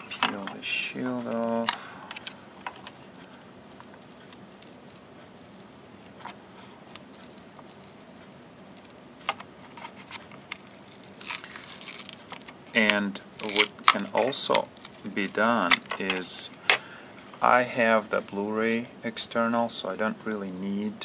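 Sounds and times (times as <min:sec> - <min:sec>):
small clicks and ticks: 0:02.1 - 0:06.3, 0:06.9 - 0:09.4
foil peeling and crackling: 0:03.2 - 0:16.3.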